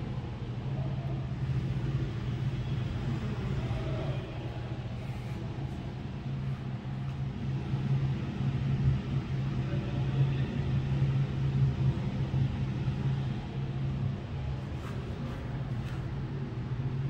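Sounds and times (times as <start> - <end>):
soft rushing noise: 14.4 - 16.7.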